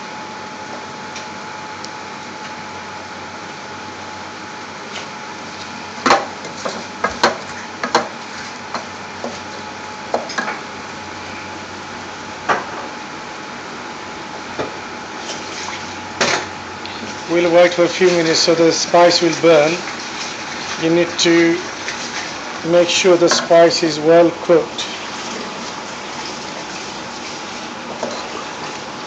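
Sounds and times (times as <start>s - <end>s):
spices frying hiss: 16.9s - 28.5s.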